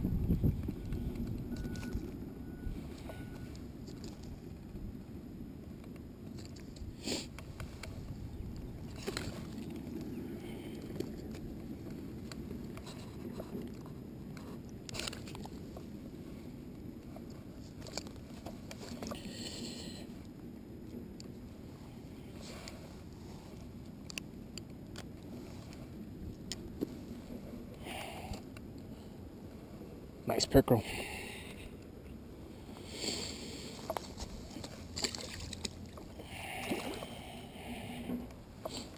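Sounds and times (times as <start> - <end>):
wind rumbling on microphone: 0.0 - 38.9
lake water sloshing and splashing: 7.7 - 10.9, 33.7 - 37.9
handling clicks and rustles: 16.7 - 19.2.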